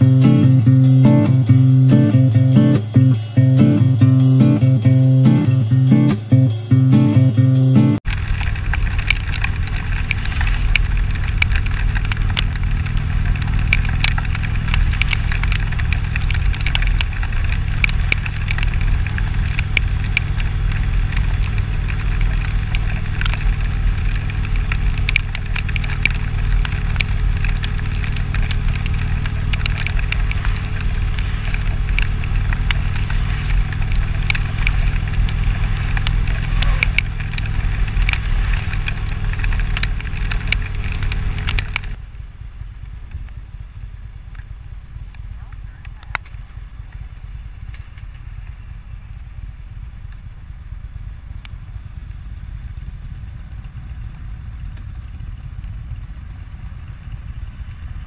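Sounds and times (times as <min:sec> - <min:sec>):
motorcycle engine and wind rumble: 0:00.0 - 0:06.3, 0:08.0 - 0:58.0
raindrops ticking on camera: 0:08.0 - 0:42.0.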